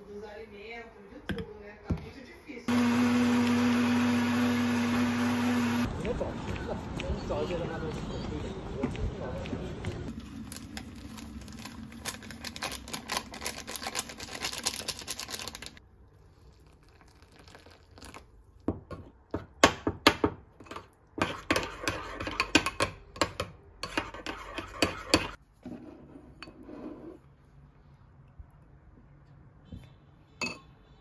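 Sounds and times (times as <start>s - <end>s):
plastic sachet crinkling: 10.2s - 15.8s
metal spoon scraping ceramic bowl: 20.7s - 22.8s, 23.8s - 27.2s.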